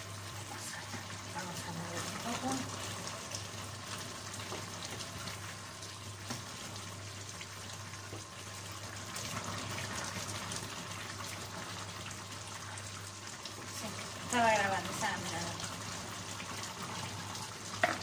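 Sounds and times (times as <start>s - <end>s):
stew bubbling in pan: 0.0s - 18.0s
spoon knocking against pan: 17.8s - 18.0s.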